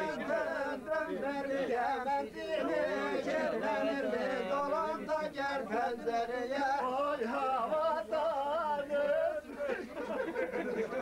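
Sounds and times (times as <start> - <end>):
men chanting together: 0.0 - 10.2.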